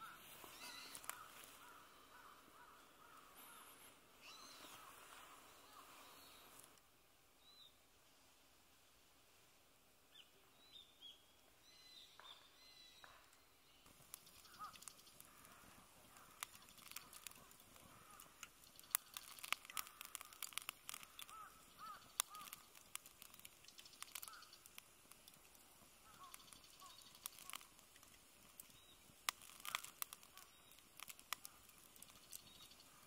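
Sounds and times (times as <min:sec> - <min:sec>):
short bird chirps: 0:00.0 - 0:02.3
campfire crackling and popping: 0:00.0 - 0:03.6, 0:13.8 - 0:33.0.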